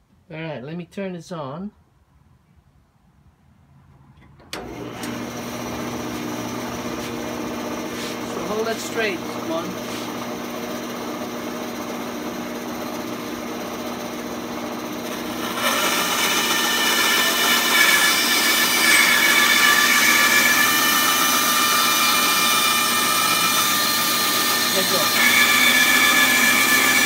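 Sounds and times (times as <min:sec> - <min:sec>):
saw blade cutting wood: 0:04.6 - 0:10.3, 0:14.9 - 0:27.0
band saw humming: 0:04.6 - 0:27.0.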